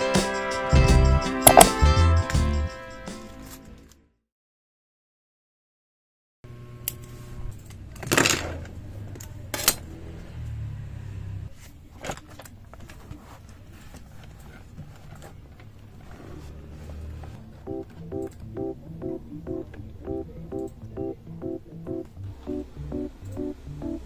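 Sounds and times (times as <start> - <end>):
book pages rustling: 11.5 - 18.1.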